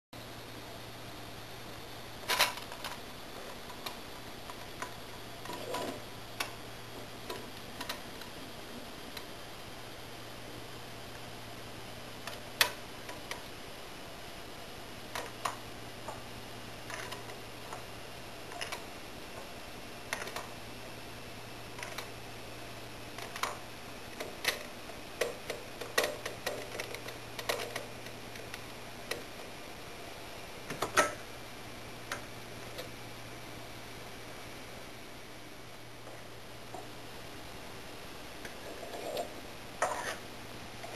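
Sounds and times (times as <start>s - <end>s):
faint steady hum: 0.2s - 40.9s
plastic parts clicking and clinking: 2.3s - 6.5s, 15.1s - 16.2s, 16.9s - 17.9s, 18.5s - 18.9s, 20.1s - 20.5s, 21.8s - 22.1s, 23.2s - 29.2s.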